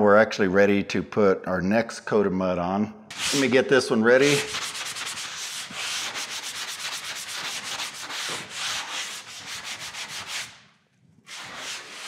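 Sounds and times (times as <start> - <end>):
sanding sponge scratching drywall: 3.1 - 12.0.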